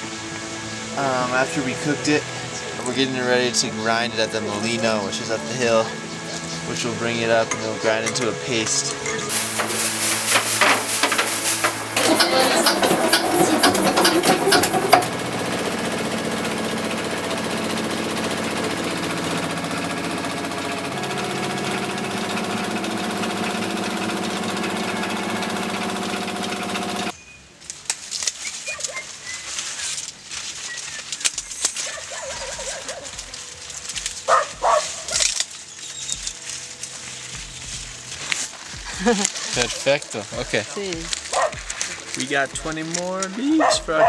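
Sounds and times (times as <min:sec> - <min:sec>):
corn mill grinding: 0:06.7 - 0:27.1, 0:32.7 - 0:44.0
handling sounds: 0:08.1 - 0:15.1
leaves rustling: 0:08.4 - 0:44.0
mill motor humming: 0:09.2 - 0:27.1.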